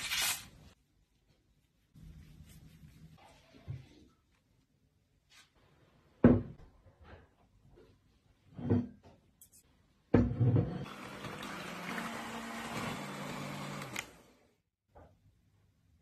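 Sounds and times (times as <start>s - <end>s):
electric hand mixer whirring: 10.8s - 14.3s.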